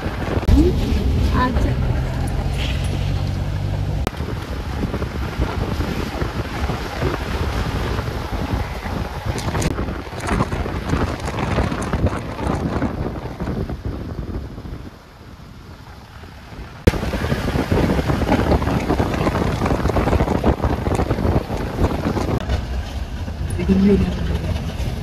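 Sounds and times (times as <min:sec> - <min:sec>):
car road noise: 0:00.0 - 0:25.0
wind buffeting microphone: 0:00.0 - 0:25.0.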